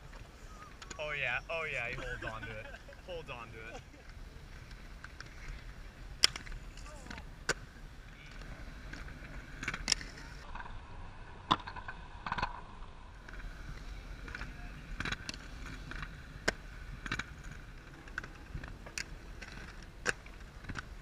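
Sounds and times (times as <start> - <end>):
skates clacking on concrete: 0.0 - 10.7, 11.5 - 21.0
skate wheels rolling on concrete: 0.0 - 21.0.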